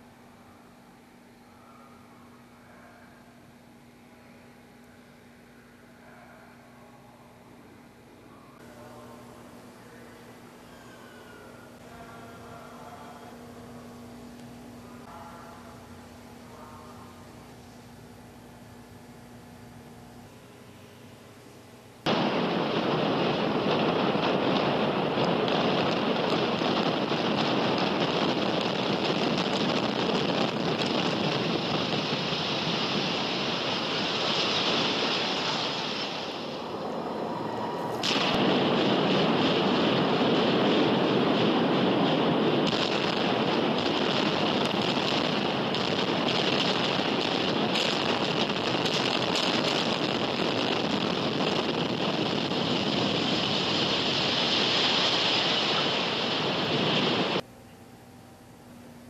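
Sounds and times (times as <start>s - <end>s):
loud rushing noise: 22.1s - 57.4s.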